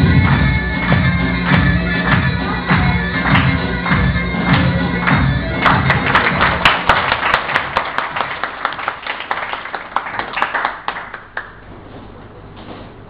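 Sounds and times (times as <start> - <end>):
audience applauding: 3.2 - 11.6.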